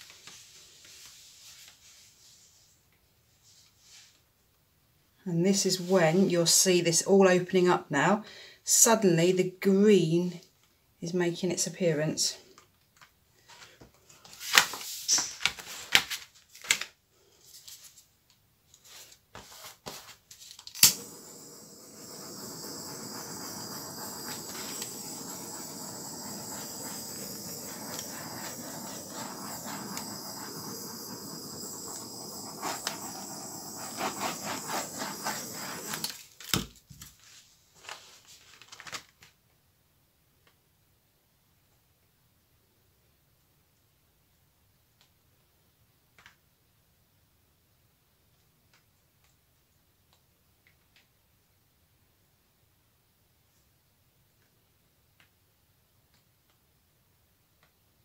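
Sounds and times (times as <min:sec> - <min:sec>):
torch lighting click: 0:20.7 - 0:36.2
butane torch hissing: 0:20.7 - 0:36.4.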